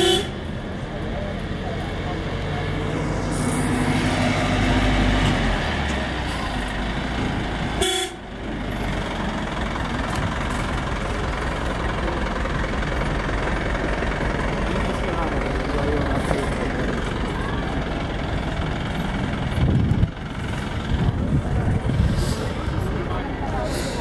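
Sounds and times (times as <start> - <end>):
vehicle horn toot: 0.0 - 0.4, 7.8 - 8.2
heavy vehicle engine running: 0.0 - 24.0
traffic noise: 0.0 - 24.0.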